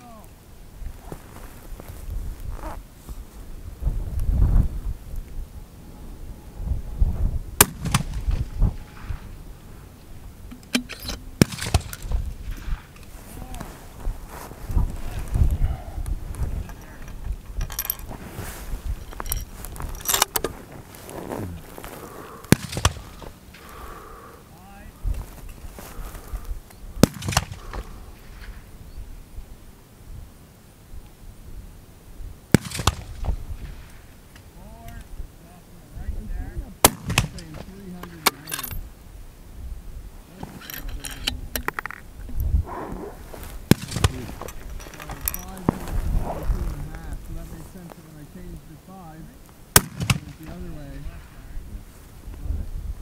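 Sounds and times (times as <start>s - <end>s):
wind on microphone: 0.7s - 10.6s, 11.6s - 37.5s, 38.8s - 48.5s, 50.2s - 53.0s
weaker gunshot report: 7.6s - 9.2s, 22.5s - 23.7s, 27.0s - 28.6s, 36.8s - 37.6s, 43.7s - 44.4s, 49.8s - 50.9s
rifle shot: 7.6s - 9.3s, 10.7s - 12.9s, 22.5s - 23.7s, 27.0s - 28.6s, 32.5s - 33.9s, 36.8s - 37.6s, 43.7s - 44.4s, 49.7s - 50.6s
sharp crack: 7.6s - 9.4s, 10.5s - 13.7s, 20.0s - 24.7s, 27.0s - 28.7s, 32.5s - 35.0s, 36.8s - 38.7s, 42.8s - 47.3s, 49.7s - 51.0s
metallic clicks and rustling: 10.5s - 13.6s, 16.3s - 21.2s, 37.2s - 38.8s, 40.3s - 42.1s, 43.7s - 46.0s.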